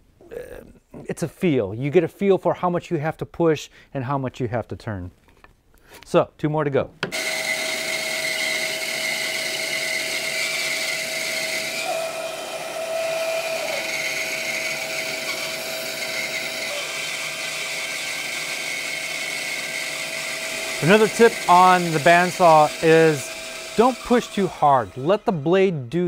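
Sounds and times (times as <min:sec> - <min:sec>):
bandsaw cutting wood: 0:07.1 - 0:26.0.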